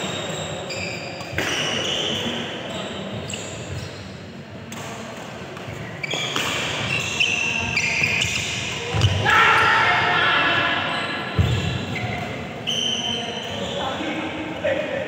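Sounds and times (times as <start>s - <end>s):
shoes squeaking on court: 0.0s - 4.2s, 5.4s - 9.2s, 10.8s - 14.4s
rackets striking shuttlecock: 1.1s - 2.4s, 4.7s - 7.1s
players' voices: 6.8s - 15.0s.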